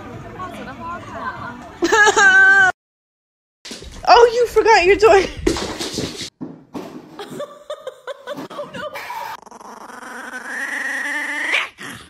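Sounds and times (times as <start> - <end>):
small dog whining: 9.0 - 11.8.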